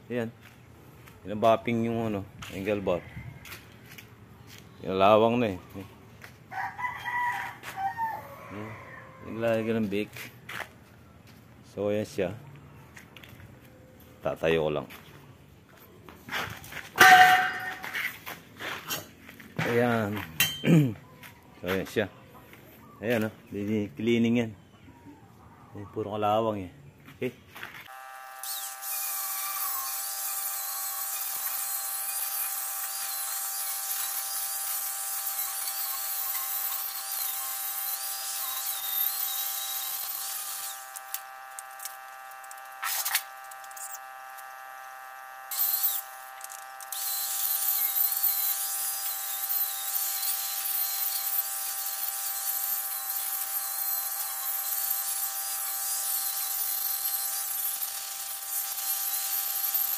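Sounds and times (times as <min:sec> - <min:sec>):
angle grinder motor whine: 0:27.8 - 0:59.9
grinding hiss on metal: 0:46.9 - 0:59.9.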